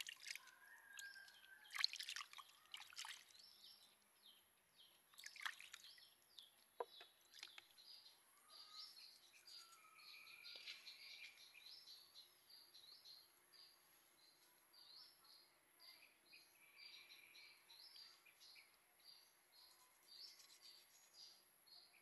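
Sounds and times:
water splashing in bowl: 0.0s - 3.4s, 5.1s - 7.8s
small birds chirping: 0.0s - 22.0s.

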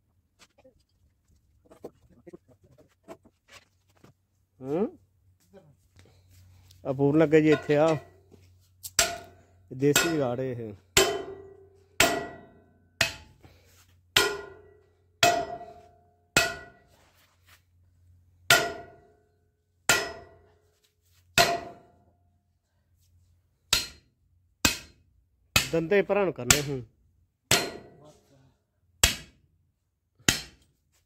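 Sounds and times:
hammer striking steel: 7.4s - 8.1s, 8.8s - 10.4s, 11.0s - 13.4s, 14.2s - 16.9s, 18.5s - 19.1s, 19.9s - 20.5s, 21.4s - 21.9s, 23.7s - 25.8s, 26.5s - 26.8s, 27.5s - 28.0s, 29.0s - 29.4s, 30.2s - 30.7s.

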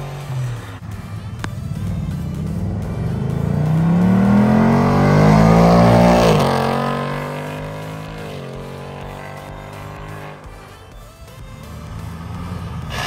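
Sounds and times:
car engine accelerating past: 0.0s - 10.8s, 11.5s - 13.0s.

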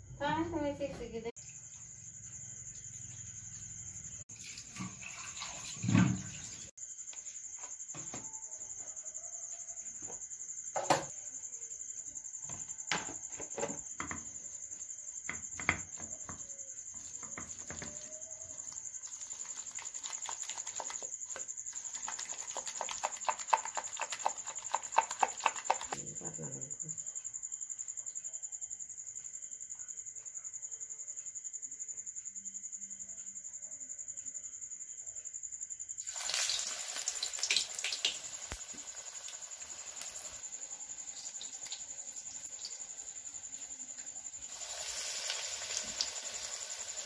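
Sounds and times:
high-pitched insect drone: 36.0s - 47.0s.

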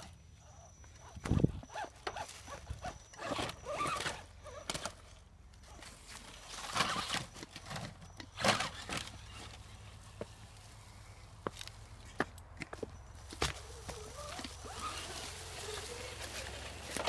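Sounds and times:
toy car tyres bumping over stones: 1.1s - 10.4s, 11.4s - 17.0s
footsteps crunching dry leaves: 12.8s - 17.0s.

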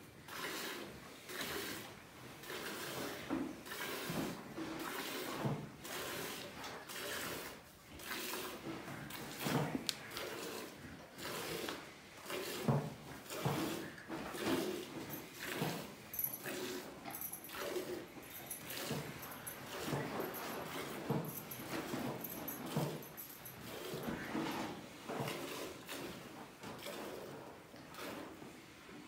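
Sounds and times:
milk squirting into a pail: 0.3s - 19.0s, 25.2s - 28.3s.

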